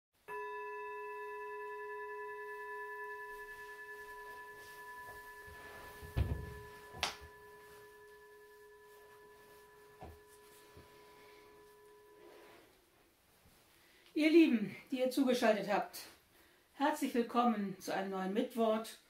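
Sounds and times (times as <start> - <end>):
struck bell ringing: 0.3 - 12.5
upholstery rustling: 4.3 - 6.9
soft thumps in armchair: 6.0 - 6.8.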